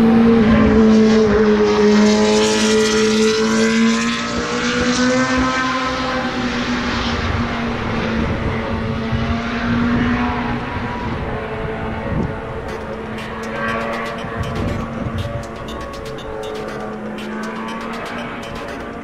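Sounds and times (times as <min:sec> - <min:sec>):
racing car engine: 0:00.0 - 0:19.0.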